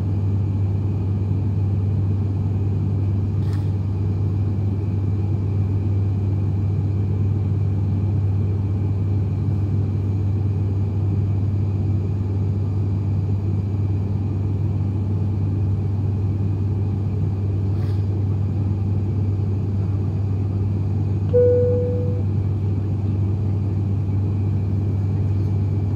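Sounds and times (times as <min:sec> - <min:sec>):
turboprop engine drone in cabin: 0:00.0 - 0:25.9
single-note chime: 0:21.3 - 0:22.3.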